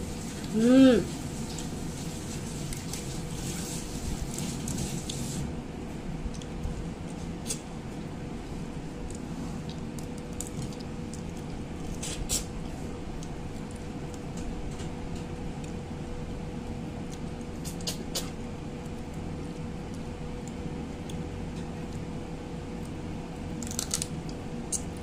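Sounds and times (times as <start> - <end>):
faint hum: 0.0 - 25.0
sharp clicks and smacks: 17.2 - 18.4.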